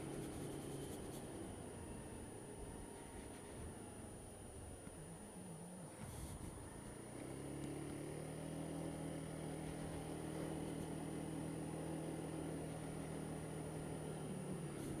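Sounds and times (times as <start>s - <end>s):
scooter engine running: 0.0s - 15.0s.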